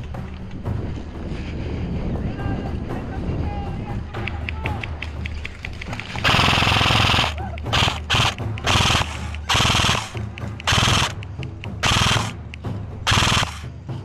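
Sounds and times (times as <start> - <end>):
airsoft gun automatic bursts: 6.2 - 11.2, 11.8 - 12.4, 13.1 - 13.7.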